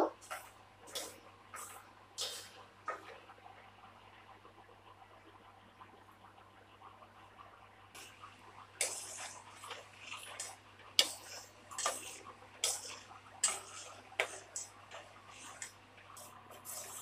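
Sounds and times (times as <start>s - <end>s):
metal spoon scraping a pot: 8.8s - 15.7s
liquid swishing: 8.8s - 17.0s.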